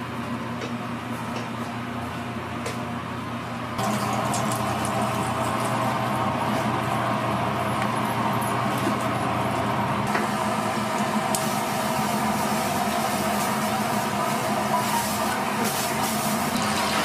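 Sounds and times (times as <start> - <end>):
machine hum: 1.8 - 17.0
oil sizzling in a deep fryer: 3.8 - 8.0, 10.0 - 17.0.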